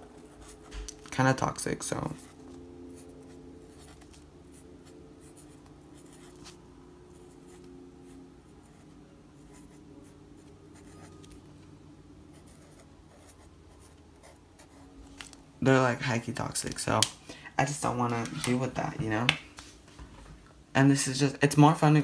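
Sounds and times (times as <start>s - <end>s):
faint steady hum: 0.0s - 22.0s
marker scratching on paper: 3.0s - 11.3s.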